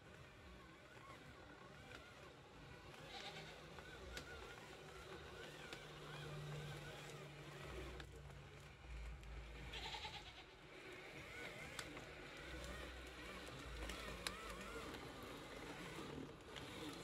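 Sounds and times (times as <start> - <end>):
faint motor hum: 0.0 - 17.0
toy truck rumbling on gravel: 0.3 - 17.0.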